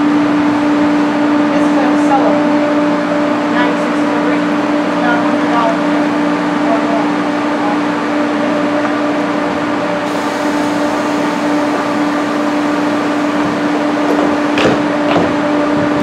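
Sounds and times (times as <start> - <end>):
train fans humming: 6.8 - 16.0.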